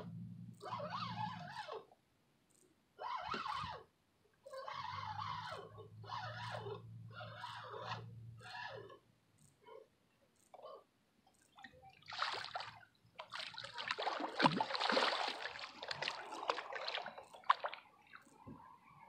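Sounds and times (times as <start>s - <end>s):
fish splashing in water: 12.0s - 18.4s.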